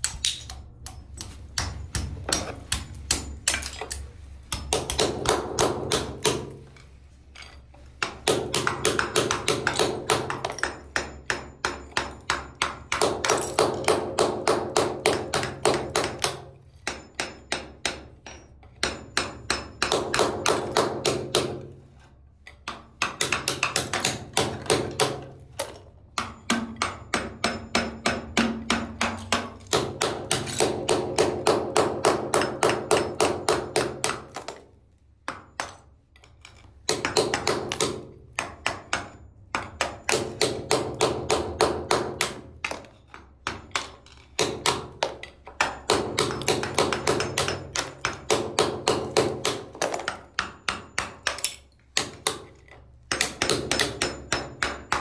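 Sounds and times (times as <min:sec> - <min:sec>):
rapid metal tapping on tiles: 0:36.9 - 0:52.5.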